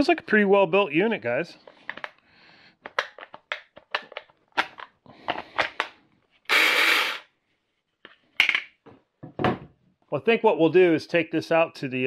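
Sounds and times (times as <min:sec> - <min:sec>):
plastic clicks and knocks: 0:02.8 - 0:06.0.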